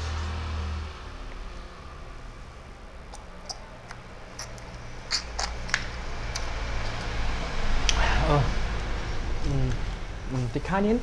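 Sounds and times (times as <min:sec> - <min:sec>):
wet clicks and squelches: 0:03.1 - 0:07.2.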